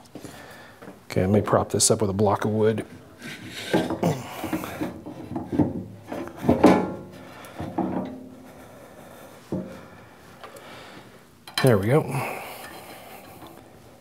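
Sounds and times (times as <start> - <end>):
metal cover clunking: 3.5 - 8.3.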